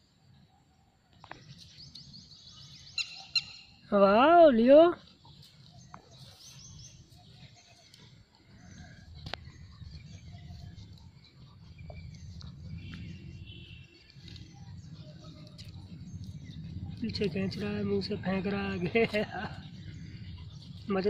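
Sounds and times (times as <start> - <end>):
birds chirping: 0.0 - 21.0
low steady rumble: 6.9 - 21.0.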